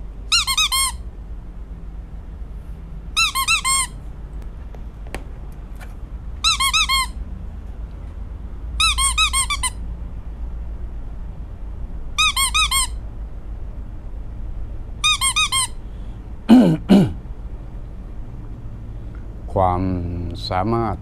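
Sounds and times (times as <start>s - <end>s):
high squeaky chirps: 0.3s - 1.1s, 3.2s - 4.0s, 6.4s - 7.2s, 8.8s - 9.8s, 12.2s - 13.0s, 15.0s - 15.8s.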